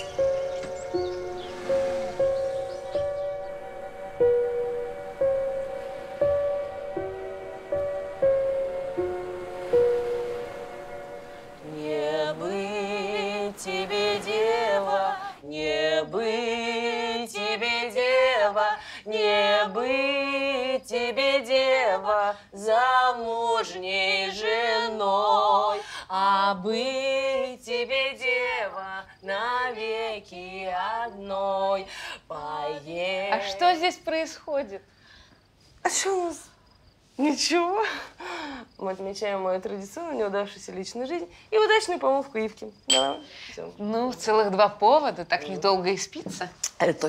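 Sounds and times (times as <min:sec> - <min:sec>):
soft instrumental music: 0:00.0 - 0:15.4
women singing unaccompanied: 0:10.6 - 0:34.9.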